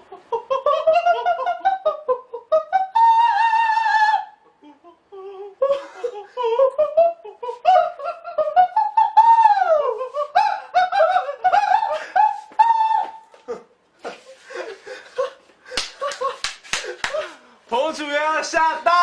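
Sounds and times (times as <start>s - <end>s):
men laughing: 0.0s - 3.6s, 4.6s - 17.4s
men shrieking falsetto: 2.6s - 4.8s, 7.7s - 13.7s.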